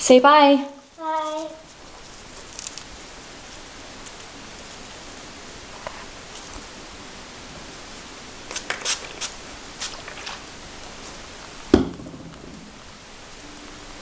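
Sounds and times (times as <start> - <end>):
steady background hiss: 0.0 - 14.0
loud knock: 11.7 - 12.8.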